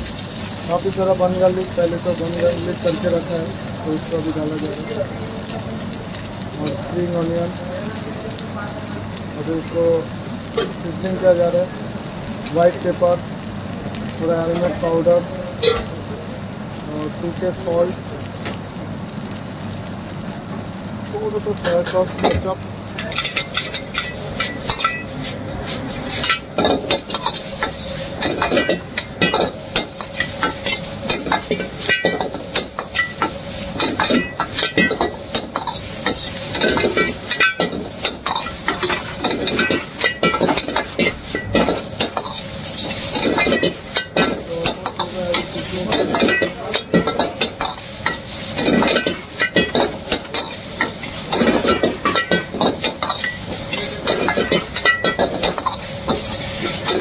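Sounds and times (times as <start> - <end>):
food sizzling in a wok: 0.0 - 57.0
metal ladle scraping a wok: 23.0 - 57.0.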